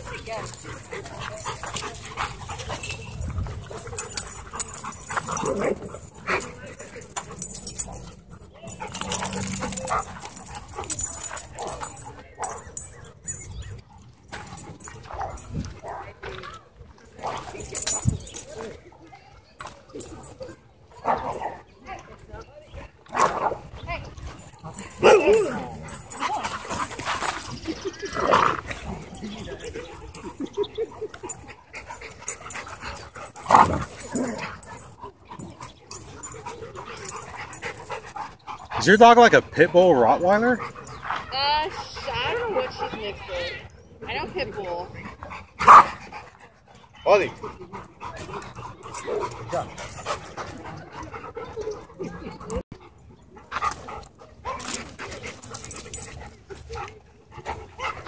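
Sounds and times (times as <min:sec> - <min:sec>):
dogs scuffling: 0:00.0 - 0:13.4
dogs whining and yipping: 0:00.0 - 0:15.6, 0:17.5 - 0:18.5, 0:24.3 - 0:39.0, 0:47.8 - 0:52.6.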